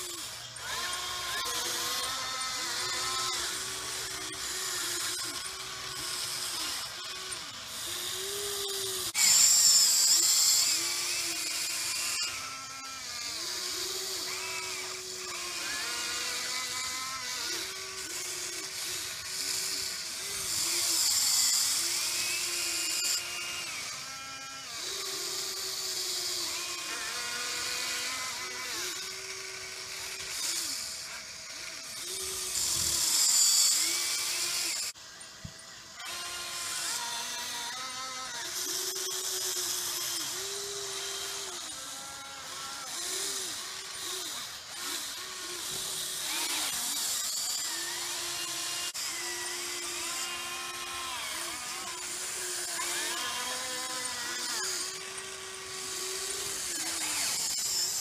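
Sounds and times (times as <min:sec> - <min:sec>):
small electric motors whining: 0:00.0 - 0:58.0.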